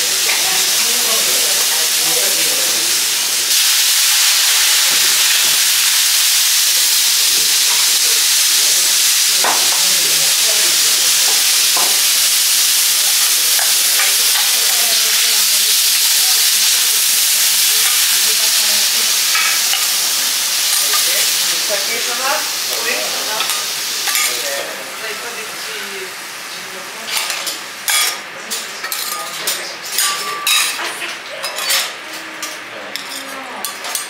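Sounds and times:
pineapple sizzling on griddle: 0.0s - 34.0s.

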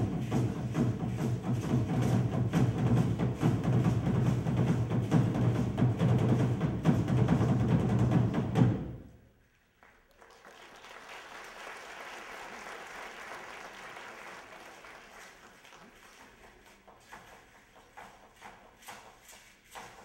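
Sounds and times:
loud drumming: 0.0s - 9.1s
audience applauding: 9.7s - 17.2s.

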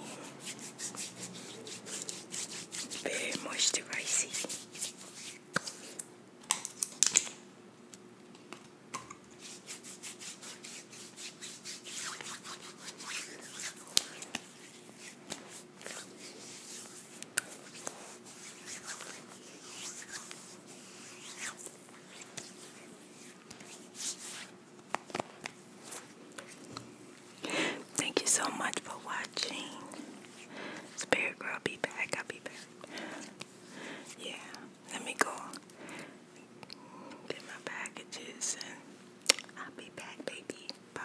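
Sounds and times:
hands rubbing cream into skin: 0.0s - 6.0s, 9.4s - 26.7s.

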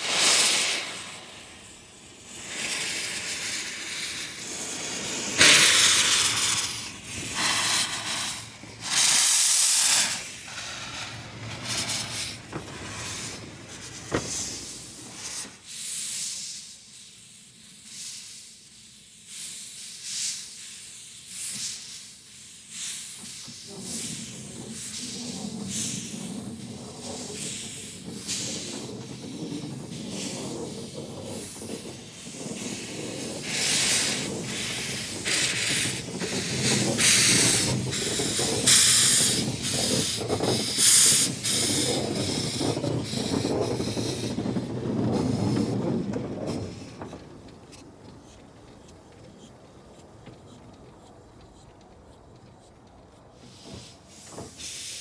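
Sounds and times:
low locomotive rumble: 0.0s - 15.6s, 23.3s - 54.7s
rhythmic steam hiss bursts: 0.0s - 55.0s.

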